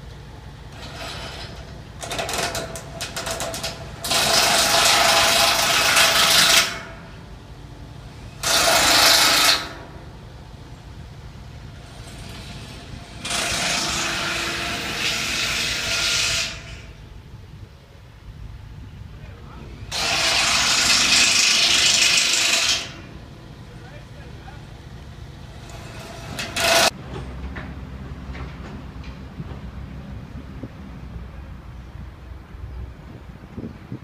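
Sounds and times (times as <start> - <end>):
power tool running: 11.8 - 16.8, 19.9 - 23.1.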